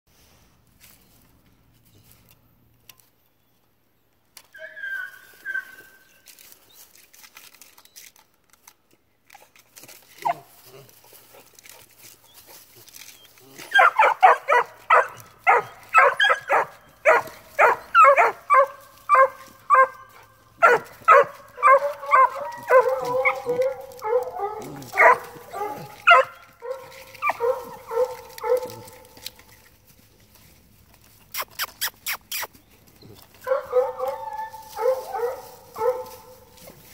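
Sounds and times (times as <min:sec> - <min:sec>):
hound pups barking: 0:04.6 - 0:06.1, 0:10.1 - 0:36.9.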